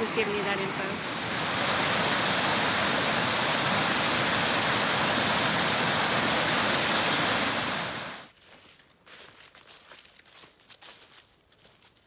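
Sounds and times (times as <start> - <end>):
stream rushing over rocks: 0.0 - 8.3.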